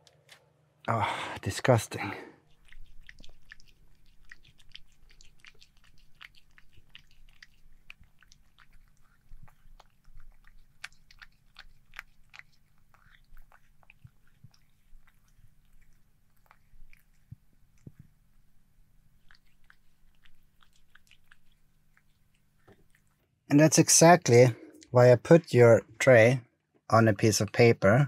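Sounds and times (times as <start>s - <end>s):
cat chewing and licking: 2.4s - 23.2s.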